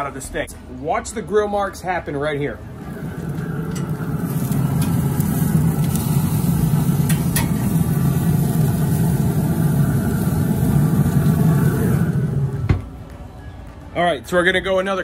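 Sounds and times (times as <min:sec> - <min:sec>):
grill fire and fan rumble: 0:00.0 - 0:15.0
tongs clicking on grate: 0:03.7 - 0:06.1, 0:07.0 - 0:07.6.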